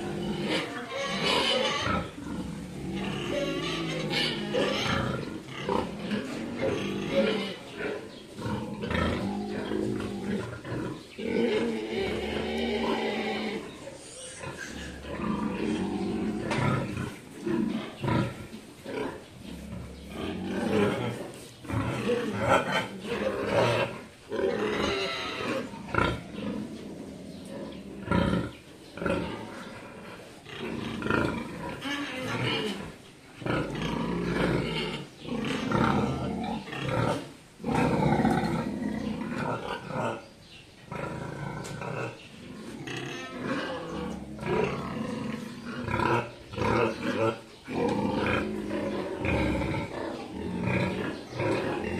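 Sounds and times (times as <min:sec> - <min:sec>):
pigs grunting: 0:00.0 - 0:40.3, 0:40.9 - 0:51.9.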